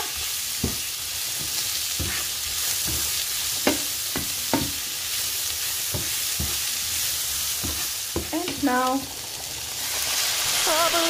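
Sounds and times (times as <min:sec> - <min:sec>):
food sizzling in oil: 0:00.0 - 0:11.0
wooden spatula scraping pan: 0:01.3 - 0:03.2.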